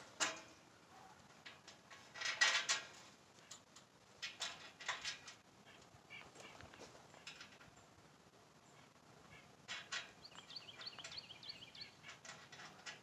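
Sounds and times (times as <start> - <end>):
metal bolts and nuts clinking: 0.0 - 0.6, 1.3 - 5.4, 9.7 - 13.0.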